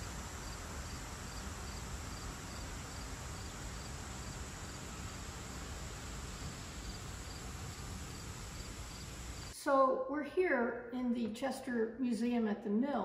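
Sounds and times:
insect chirping in high pulses: 0:00.0 - 0:09.5
steady hiss: 0:00.0 - 0:09.5.

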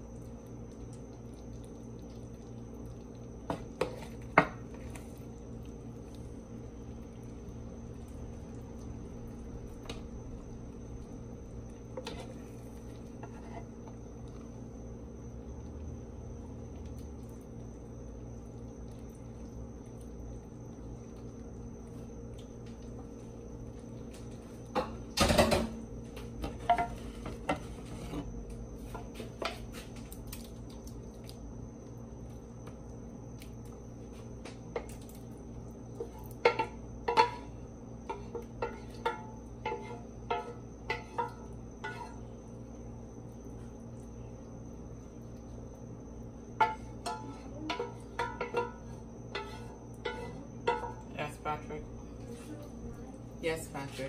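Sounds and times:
steady low hum: 0:00.0 - 0:54.0
spatula scraping a pan: 0:12.0 - 0:12.5, 0:13.2 - 0:13.8, 0:26.6 - 0:28.3, 0:36.0 - 0:37.5, 0:38.1 - 0:42.3, 0:46.6 - 0:51.0.

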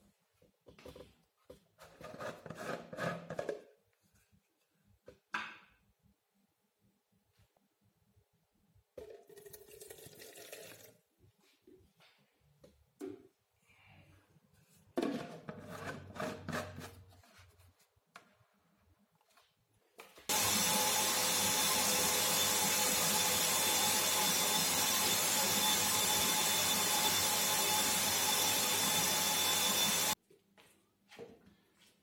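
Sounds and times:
power tool motor running: 0:20.3 - 0:30.2.

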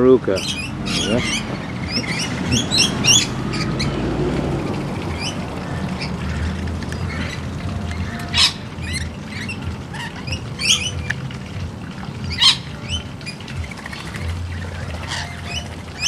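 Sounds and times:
parrots chattering and screeching: 0:00.3 - 0:11.3, 0:12.1 - 0:16.0
low rumble: 0:00.5 - 0:12.4.

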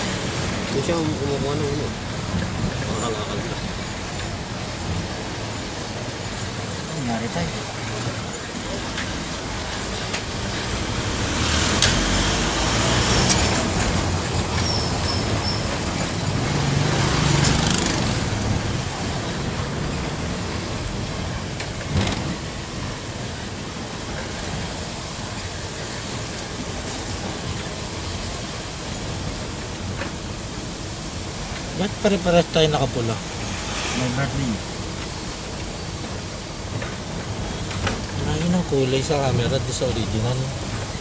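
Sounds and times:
vehicle road and engine noise: 0:00.0 - 0:41.0.

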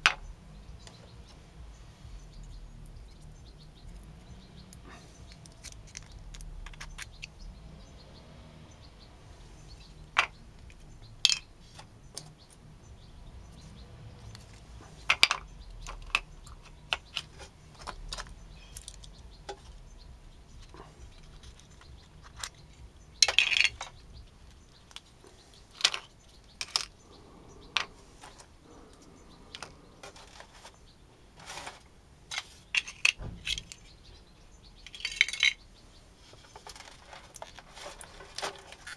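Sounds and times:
resin pucks clinking on metal: 0:10.2 - 0:11.5, 0:23.2 - 0:24.0.

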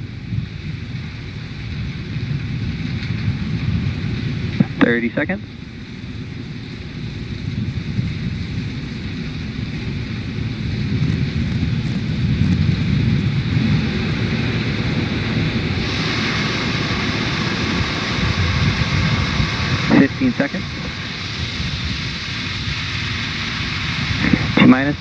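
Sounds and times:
low rumble of wind: 0:00.0 - 0:25.0
steady hiss: 0:00.0 - 0:25.0.

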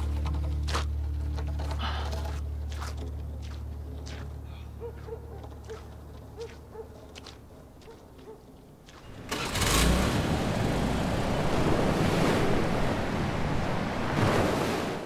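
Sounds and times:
wind: 0:00.0 - 0:15.0
ocean surf breaking: 0:09.1 - 0:15.0.

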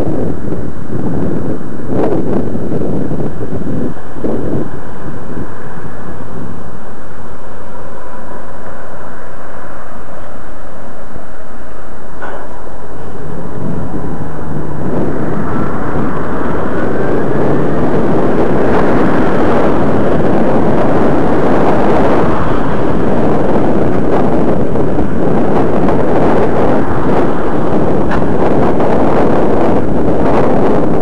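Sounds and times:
road and traffic noise: 0:00.0 - 0:31.0
wind buffeting microphone: 0:00.0 - 0:31.0.

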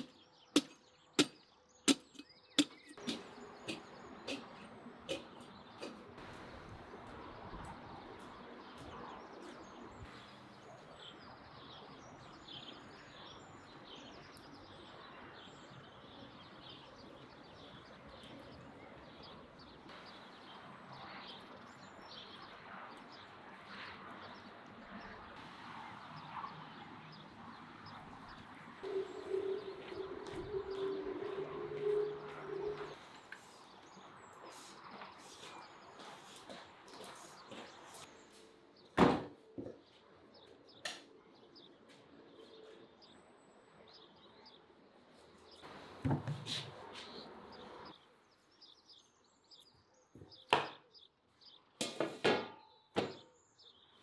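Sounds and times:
birds chirping and cooing: 0:02.1 - 0:06.8, 0:27.8 - 0:33.8
loud steady tone: 0:28.8 - 0:33.2.

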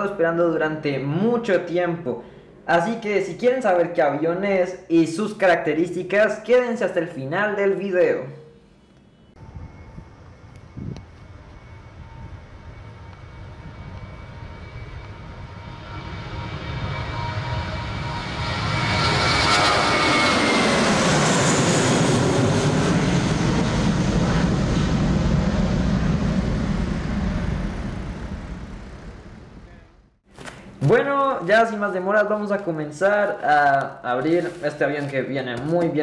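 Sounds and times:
jet airliner taking off: 0:09.4 - 0:30.2.

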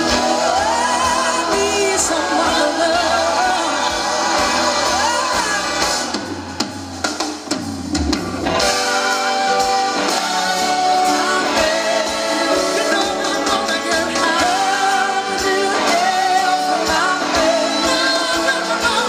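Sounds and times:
man singing lead vocals: 0:00.0 - 0:06.1, 0:08.8 - 0:19.0
backing singers chorus: 0:00.0 - 0:06.8, 0:08.5 - 0:19.0
drums: 0:00.0 - 0:19.0
electric guitar: 0:00.0 - 0:19.0
trumpet: 0:08.4 - 0:19.0.

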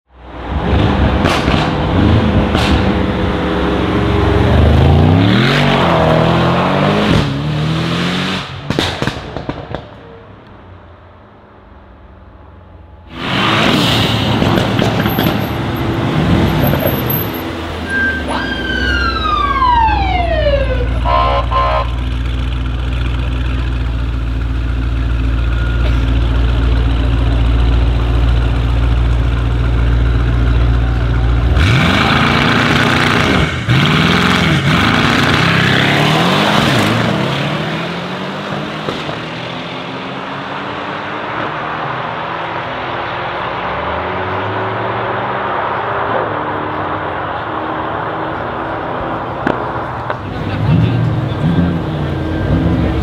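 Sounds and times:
cars accelerating at full throttle: 0:00.2 - 0:09.2, 0:13.1 - 0:24.2, 0:25.8 - 0:53.0
car engines idling with deep rumble: 0:20.8 - 0:31.6, 0:48.0 - 0:53.0.

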